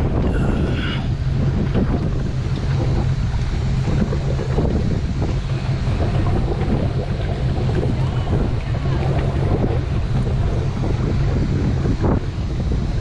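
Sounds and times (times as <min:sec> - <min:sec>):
water slapping against boat hulls: 0:00.0 - 0:13.0
wind buffeting microphone: 0:00.0 - 0:13.0.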